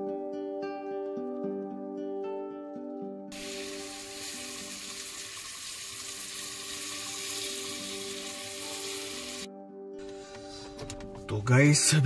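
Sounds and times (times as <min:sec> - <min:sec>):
background music: 0:00.0 - 0:12.0
pots sizzling on stove: 0:03.3 - 0:09.5.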